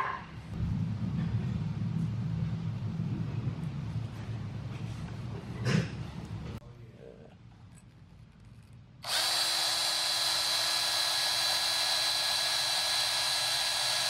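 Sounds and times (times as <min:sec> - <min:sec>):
electric drill drilling into metal: 0:09.0 - 0:14.0.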